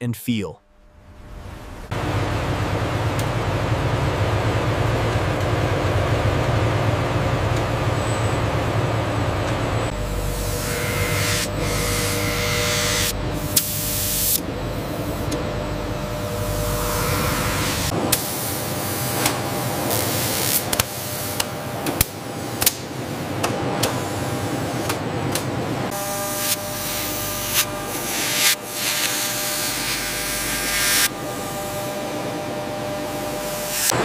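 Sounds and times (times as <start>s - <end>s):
machinery hiss and hum: 9.9s - 34.0s.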